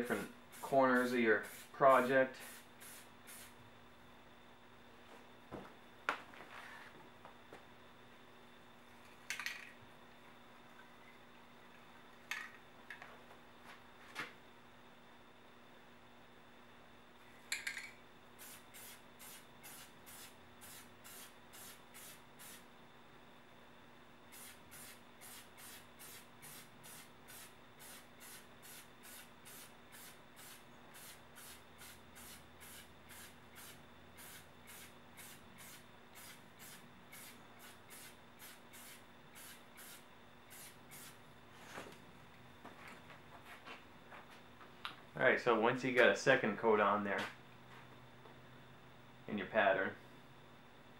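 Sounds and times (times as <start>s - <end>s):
spray can hissing bursts: 0.5s - 1.8s, 2.4s - 3.6s, 18.4s - 22.6s, 24.3s - 41.2s.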